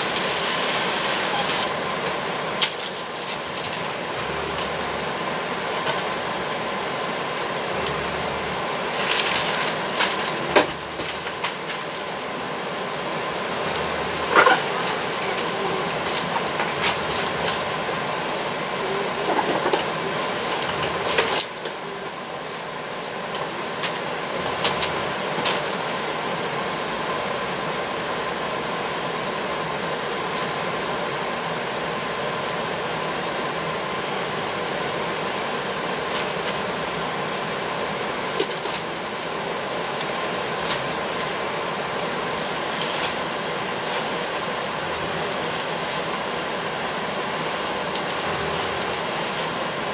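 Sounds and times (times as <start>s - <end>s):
wrapping paper rustling and tearing: 0.0s - 1.7s, 2.6s - 4.4s, 8.9s - 12.1s, 13.8s - 18.0s
fan hum: 0.0s - 49.9s.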